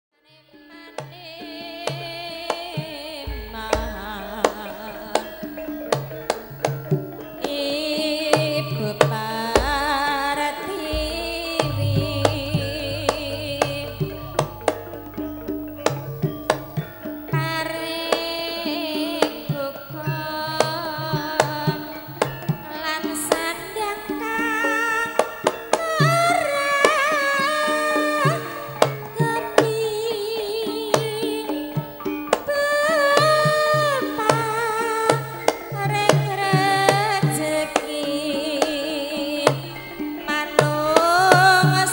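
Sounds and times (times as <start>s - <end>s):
hand-drum strokes: 1.9s - 19.7s
deep drum thumps: 3.3s - 5.0s, 9.6s - 10.1s, 10.9s - 16.7s
woman singing ornamented: 7.6s - 15.3s
sustained ringing tones: 10.9s - 17.3s.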